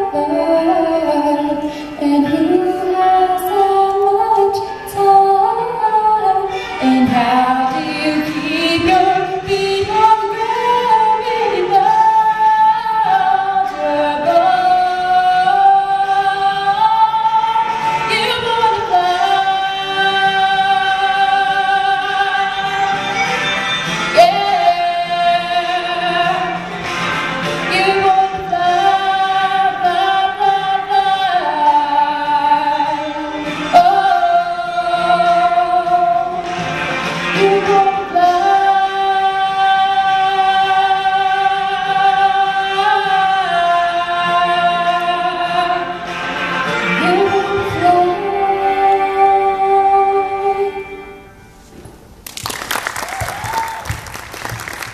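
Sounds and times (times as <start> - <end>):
woman singing into a microphone: 0.0 - 23.5, 24.1 - 26.8, 27.5 - 51.8.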